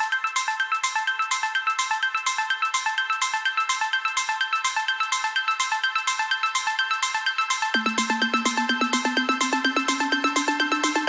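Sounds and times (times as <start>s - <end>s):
fast repeated notes: 7.6s - 11.0s.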